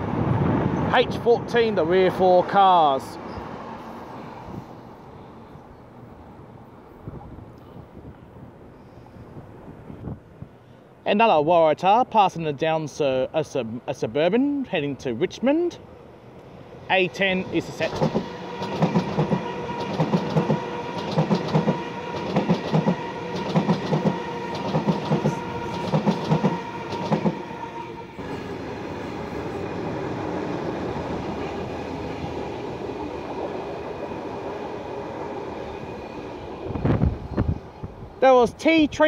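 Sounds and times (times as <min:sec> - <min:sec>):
train rumble: 0:16.1 - 0:38.2
train wheels clicking over rail joints: 0:17.8 - 0:27.4.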